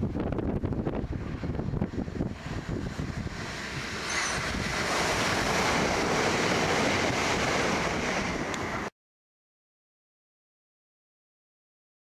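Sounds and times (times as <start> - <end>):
train passing at speed: 0.0 - 8.9
wind buffeting microphone: 0.0 - 8.9.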